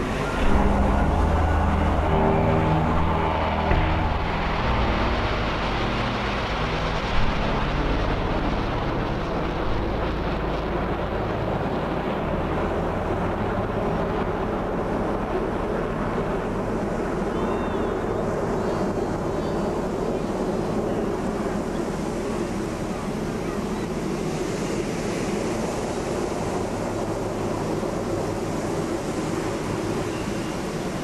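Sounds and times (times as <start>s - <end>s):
jets flying past roaring: 0.0s - 14.0s.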